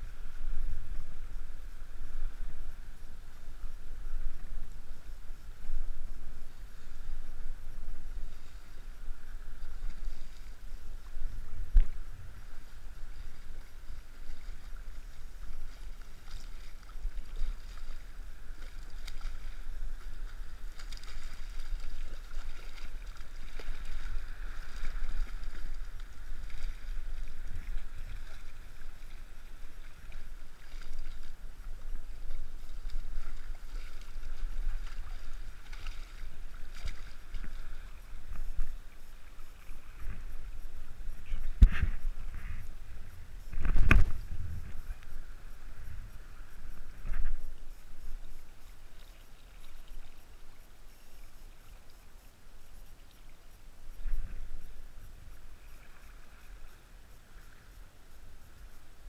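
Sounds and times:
wind rumble on microphone: 0:00.0 - 0:49.0, 0:53.6 - 0:59.0
fish splashing in water: 0:13.2 - 0:31.3.

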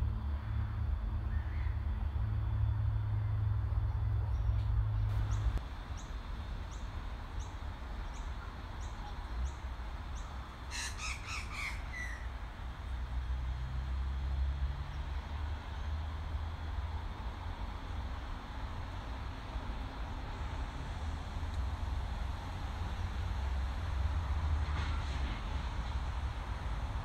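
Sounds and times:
bird squawking: 0:10.7 - 0:12.3.

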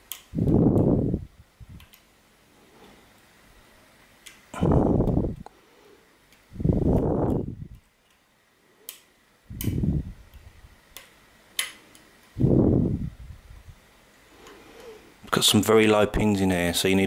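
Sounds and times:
low rumbles: 0:04.6 - 0:05.5.

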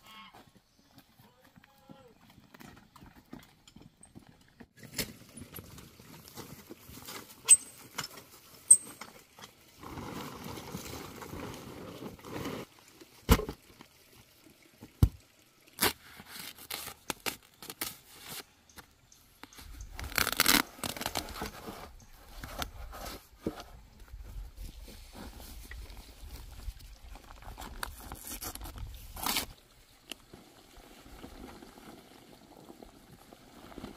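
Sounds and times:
rustling and rolling: 0:00.4 - 0:12.8, 0:16.2 - 0:33.9
cement pouring: 0:26.5 - 0:33.9.

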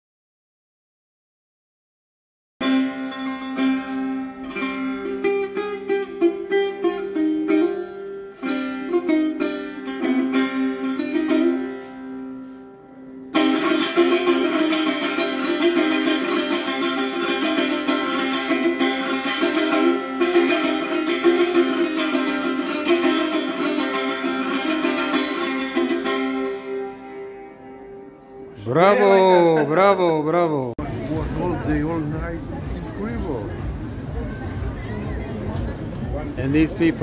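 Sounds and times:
lute picked melody: 0:02.6 - 0:37.0
drone strings: 0:13.3 - 0:37.0.

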